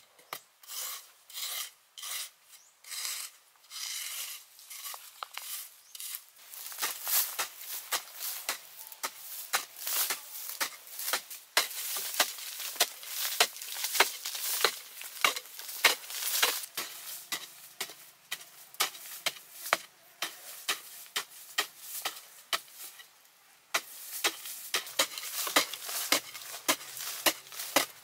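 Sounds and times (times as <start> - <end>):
digging tool striking soil: 4.7 - 23.1, 23.7 - 28.0
loose earth scattering: 6.4 - 17.1.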